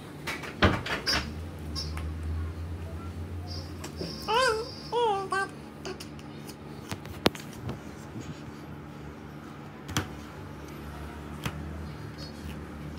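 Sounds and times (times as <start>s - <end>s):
baby babbling: 3.9s - 6.5s.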